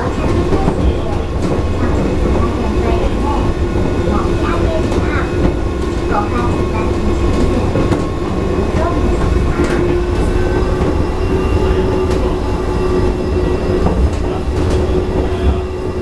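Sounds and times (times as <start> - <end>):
constant hum: 0.0 - 16.0
train running low rumble: 0.0 - 16.0.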